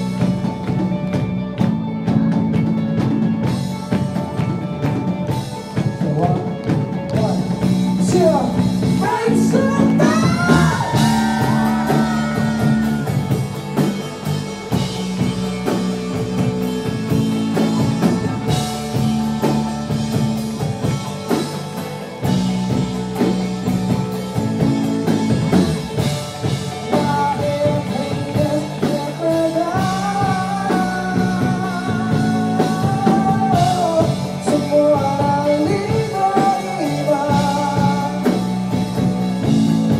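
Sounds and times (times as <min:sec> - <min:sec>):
drums: 0:00.0 - 0:39.9
electric bass long notes: 0:00.0 - 0:39.9
electric guitar: 0:00.0 - 0:39.9
person singing: 0:07.2 - 0:13.4, 0:26.7 - 0:38.7.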